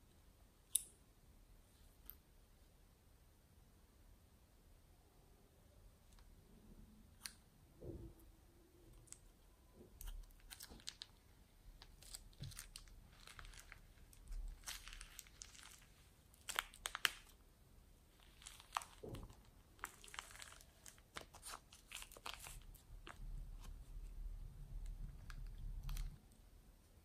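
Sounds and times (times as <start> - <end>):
plastic bag crinkling: 10.4 - 11.2, 11.8 - 17.4, 18.1 - 23.4
foam beads crackling: 12.0 - 17.4, 18.1 - 23.2.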